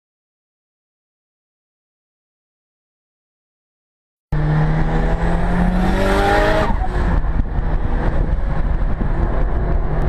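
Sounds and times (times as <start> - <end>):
car engine accelerating: 4.3 - 10.0
road and wind noise: 4.3 - 10.0.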